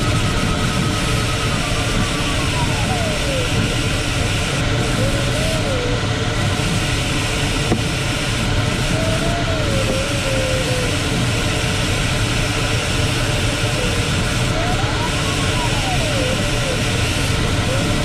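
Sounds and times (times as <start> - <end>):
wavering electronic tone: 0.0 - 6.3, 13.4 - 18.0.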